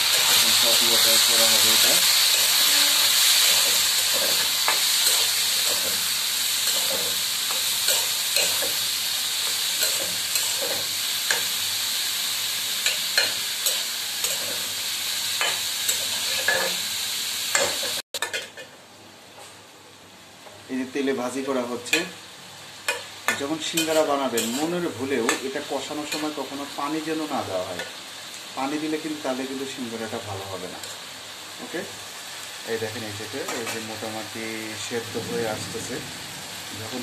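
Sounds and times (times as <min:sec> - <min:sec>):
vegetables sizzling in hot oil: 0:00.0 - 0:18.8, 0:20.6 - 0:37.0
spatula scraping and knocking pan: 0:22.9 - 0:25.5.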